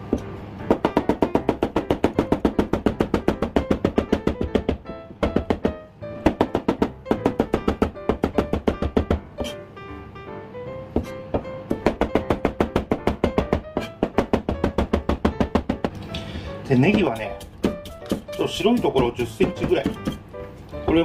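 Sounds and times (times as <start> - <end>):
background music: 0.0 - 21.0
knife chopping on a cutting board: 0.1 - 9.6, 11.0 - 16.0, 16.8 - 20.3.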